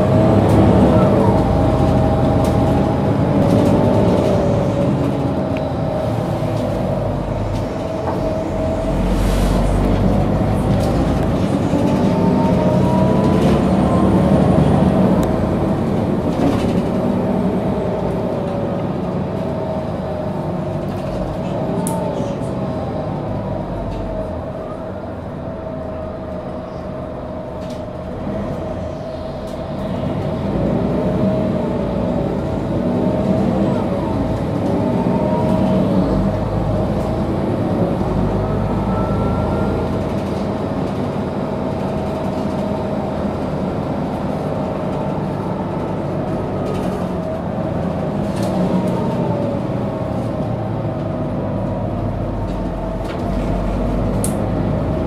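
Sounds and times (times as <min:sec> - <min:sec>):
bus engine rumbling and whining: 0:00.0 - 0:55.0.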